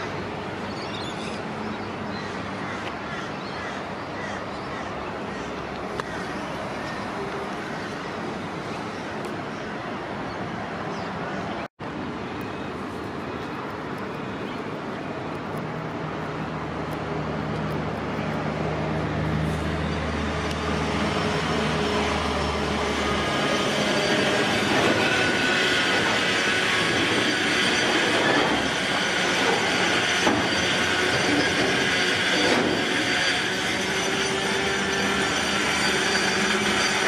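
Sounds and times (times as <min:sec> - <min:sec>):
steel wheels rumbling on rails: 0:16.3 - 0:37.0
high squeal of train wheels: 0:19.4 - 0:37.0.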